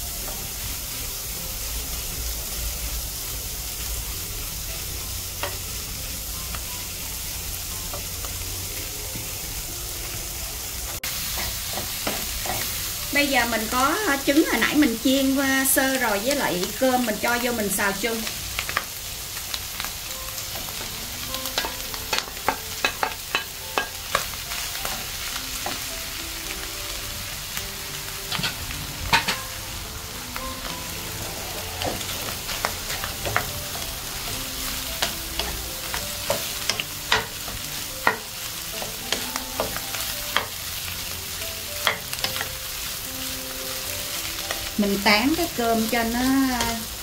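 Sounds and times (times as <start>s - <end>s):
rice sizzling in a pan: 0.0s - 47.0s
spatula scraping and knocking pan: 28.3s - 29.5s.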